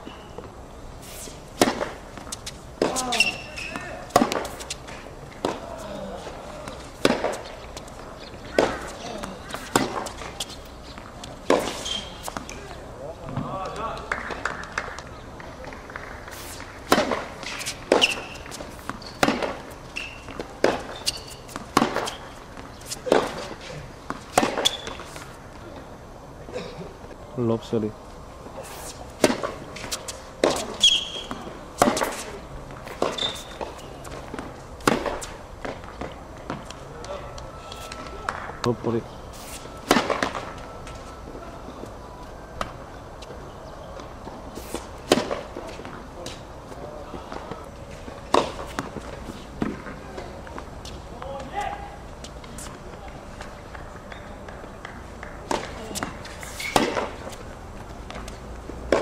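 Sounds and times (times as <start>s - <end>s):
shoes squeaking on court: 0.0s - 13.5s, 14.4s - 25.9s, 28.4s - 54.6s, 55.2s - 59.0s
racket striking tennis ball: 1.0s - 12.8s, 15.6s - 25.4s, 28.6s - 36.8s, 39.3s - 41.1s, 44.2s - 46.4s, 47.4s - 50.3s, 54.4s - 59.0s.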